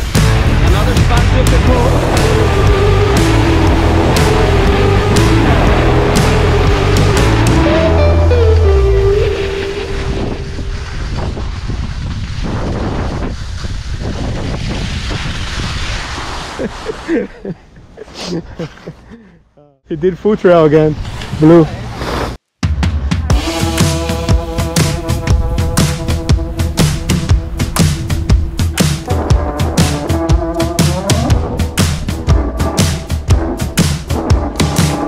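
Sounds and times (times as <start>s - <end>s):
steady drum beat: 0.0s - 8.4s, 22.6s - 35.0s
held instrumental notes: 1.6s - 10.8s, 23.3s - 35.0s
skis sliding on snow: 9.2s - 17.2s, 20.8s - 22.4s
wind buffeting microphone: 9.5s - 16.0s.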